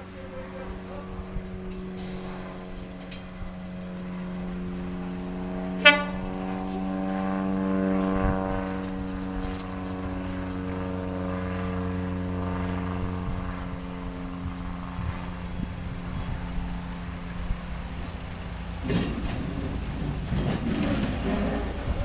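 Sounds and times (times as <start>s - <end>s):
diesel railcar engine drone: 0.0s - 22.0s
train horn toot: 5.6s - 7.2s.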